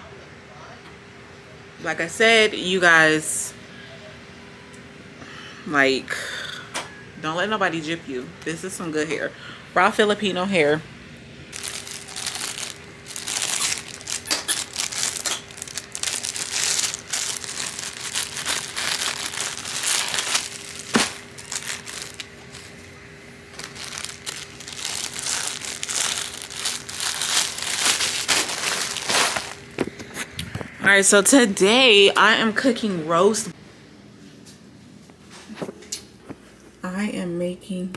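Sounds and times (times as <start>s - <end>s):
plastic packaging crinkling: 11.5s - 22.8s, 23.5s - 30.3s.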